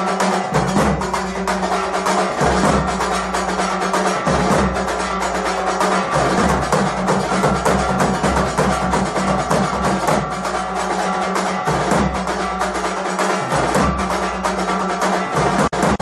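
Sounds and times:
fast drums and percussion: 0.0 - 16.0
steady ringing tones: 0.0 - 16.0.

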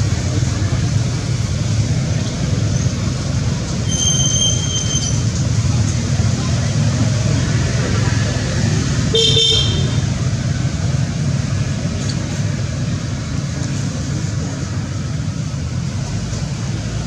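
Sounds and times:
short high-pitched squeal: 3.8 - 5.3.

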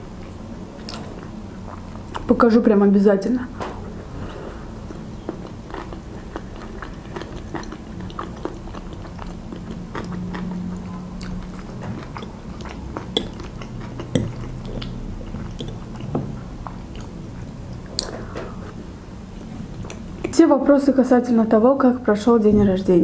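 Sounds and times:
person chewing: 0.2 - 2.3, 4.1 - 20.4.

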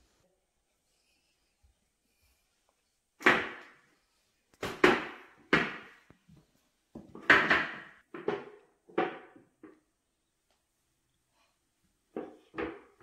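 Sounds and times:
plastic chairs knocking on hard floor: 4.6 - 6.0, 7.0 - 9.9, 12.1 - 13.0.

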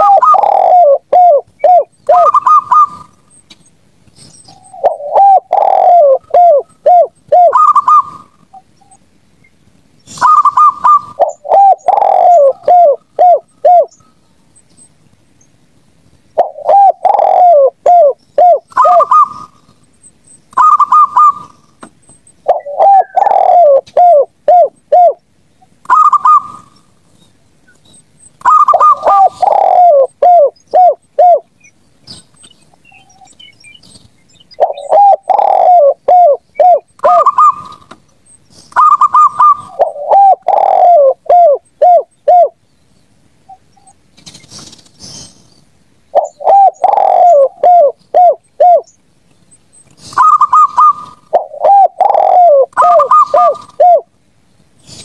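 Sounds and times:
dove low coo notes: 0.0 - 3.2, 4.5 - 9.0, 10.1 - 14.1, 16.4 - 19.8, 20.5 - 21.8, 22.4 - 27.0, 28.4 - 31.6, 34.6 - 37.9, 38.7 - 42.6, 46.1 - 48.9, 50.0 - 54.1
dove trilled cooing: 0.0 - 3.3, 4.3 - 9.0, 10.1 - 14.2, 16.3 - 27.0, 27.8 - 37.9, 38.6 - 42.6, 46.1 - 49.0, 50.0 - 54.1.

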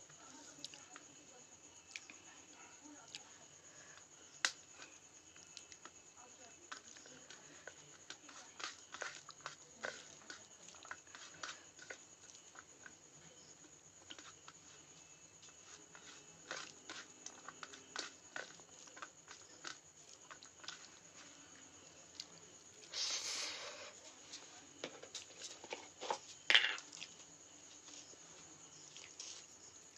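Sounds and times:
fingers mixing food on steel plate: 0.1 - 23.1.

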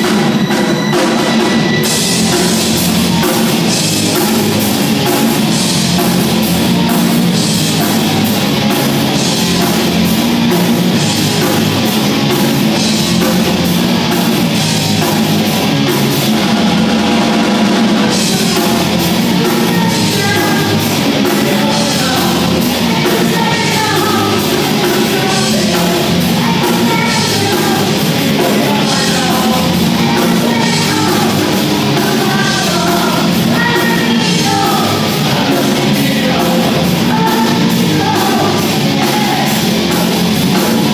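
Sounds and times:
live rock band playing: 0.0 - 40.9
woman singing lead vocal: 18.1 - 39.7.

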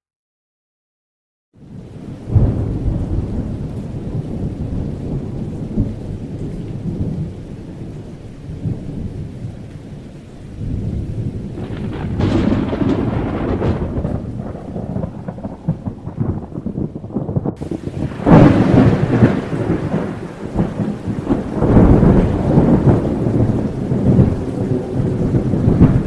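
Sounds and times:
rain: 1.6 - 26.0
rolling thunder: 1.7 - 9.6, 10.5 - 26.0
thunder crack: 2.3 - 7.3, 10.6 - 26.0.

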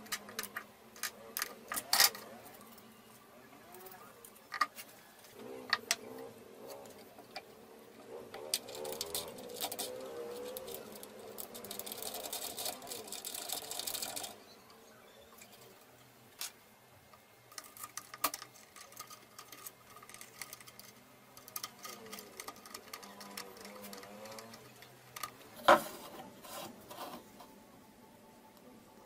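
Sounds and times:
hands clicking wooden parts: 5.7 - 7.5, 8.3 - 14.8, 16.4 - 25.8.

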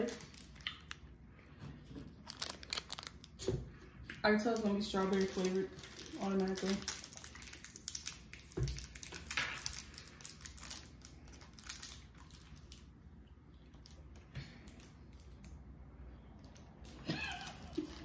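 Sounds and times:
plastic wrapper crinkling: 0.0 - 1.2, 1.8 - 3.6, 4.2 - 13.0.

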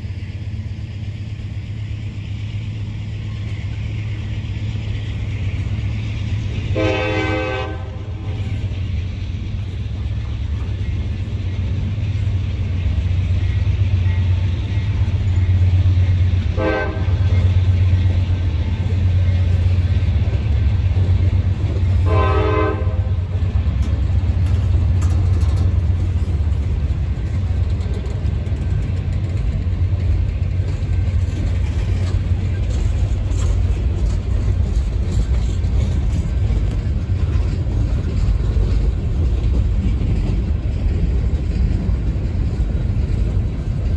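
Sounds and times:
freight train rumbling past: 0.0 - 43.9
train horn blasts: 6.7 - 8.5, 16.5 - 17.5, 22.0 - 23.3.

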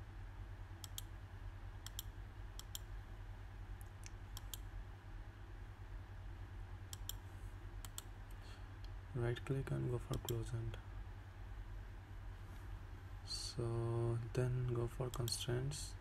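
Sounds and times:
steady low hum: 0.0 - 16.0
computer mouse clicking: 0.8 - 1.1, 1.8 - 2.9, 3.8 - 4.7, 6.9 - 7.2, 7.8 - 8.1, 10.1 - 10.4.

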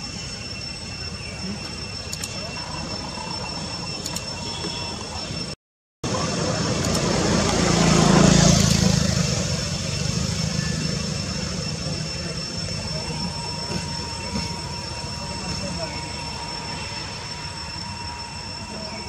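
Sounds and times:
engine passing by: 6.1 - 12.7.

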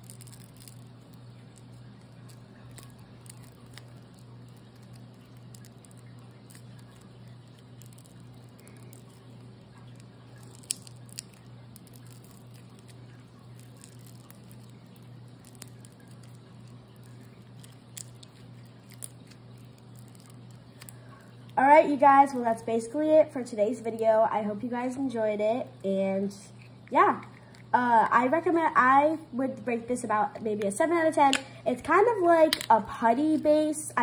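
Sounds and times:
slime squishing and crackling: 0.0 - 23.0, 30.7 - 34.0
low steady hum: 0.0 - 34.0.

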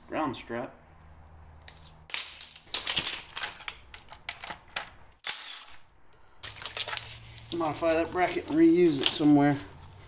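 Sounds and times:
clatter of wires and metal parts: 1.6 - 5.0, 6.4 - 10.0.

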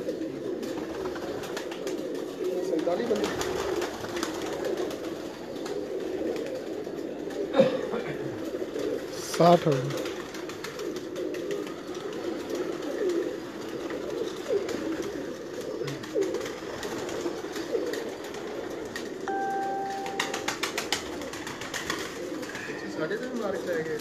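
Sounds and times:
pigeons cooing: 0.0 - 19.3, 20.5 - 24.0
steady beep: 19.3 - 20.6.

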